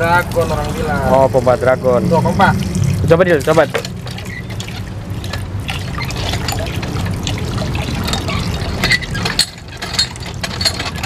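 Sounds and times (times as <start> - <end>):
low steady rumble: 0.0 - 11.0
water trickling and splashing: 0.0 - 11.0
hand pump lever working: 7.9 - 11.0.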